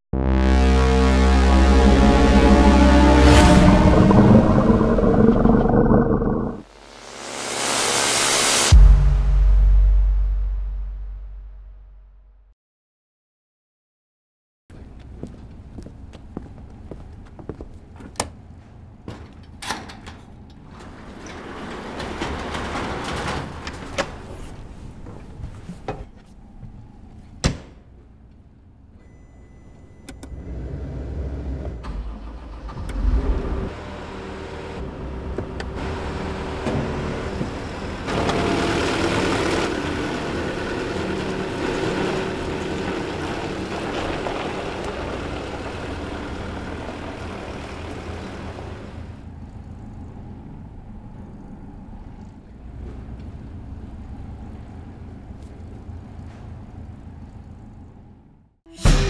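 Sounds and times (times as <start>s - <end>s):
construction machine engine running: 0.2s - 7.4s, 29.8s - 58.4s.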